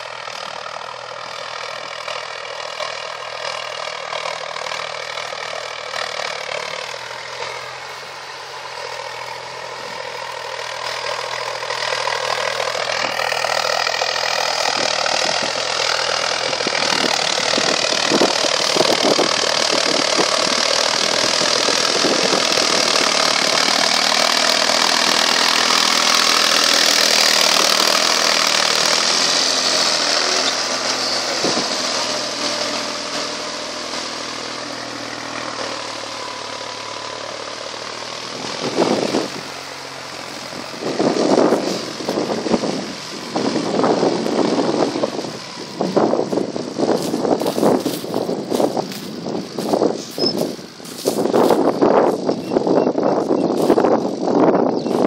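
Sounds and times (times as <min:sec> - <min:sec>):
tractor diesel engine: 0:00.0 - 0:55.0
wind gusts on microphone: 0:14.6 - 0:24.2, 0:40.3 - 0:55.0.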